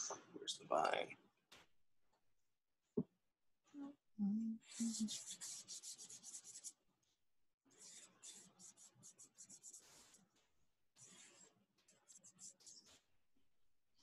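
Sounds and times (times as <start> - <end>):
charcoal scribbling on paper: 4.8 - 6.8, 7.7 - 10.4, 11.0 - 13.1.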